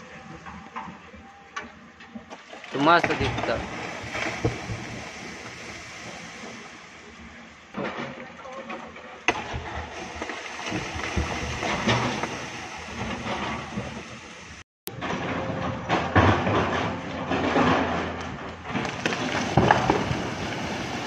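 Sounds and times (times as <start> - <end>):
rocks sliding down cliff: 2.7 - 6.8, 17.6 - 21.0.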